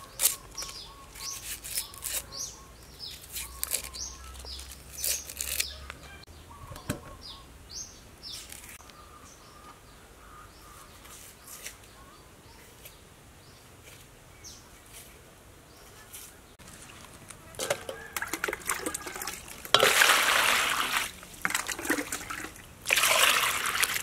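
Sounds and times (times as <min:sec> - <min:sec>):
onion skins crackling and tearing: 0:00.0 - 0:06.0.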